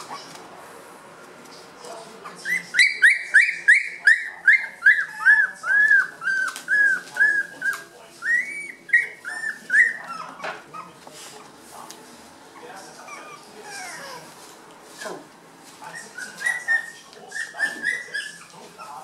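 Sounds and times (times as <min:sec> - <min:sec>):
puppies whining and yelping: 0:02.3 - 0:11.0, 0:12.6 - 0:14.3, 0:16.0 - 0:19.0.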